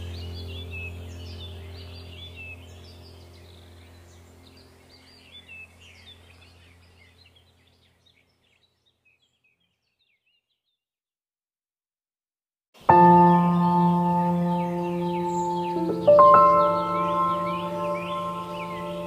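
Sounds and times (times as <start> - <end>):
low steady hum: 0.0 - 8.6, 12.8 - 19.0
birds chirping and singing: 0.0 - 10.8, 13.0 - 19.0.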